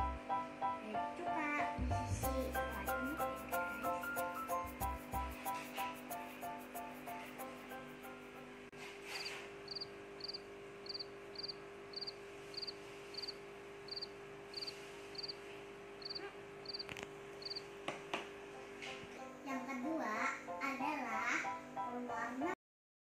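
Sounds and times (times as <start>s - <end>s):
cricket chirping: 9.7s - 15.4s, 16.0s - 17.7s.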